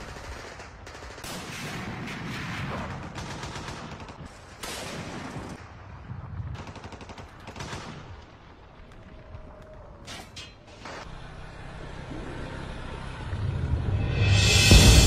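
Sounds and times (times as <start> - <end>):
rapid gunfire bursts: 0.0 - 5.6, 6.6 - 8.2.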